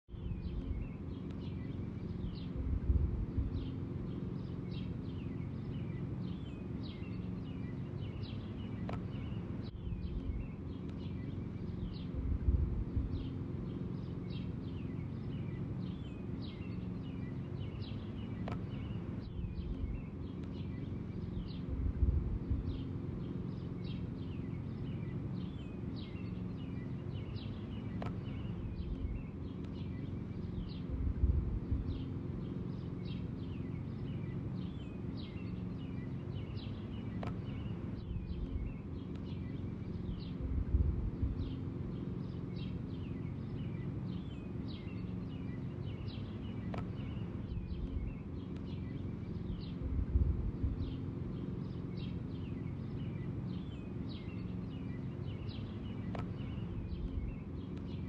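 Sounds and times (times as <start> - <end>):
small birds chirping: 0.1 - 58.0
steady low hum: 0.1 - 58.0.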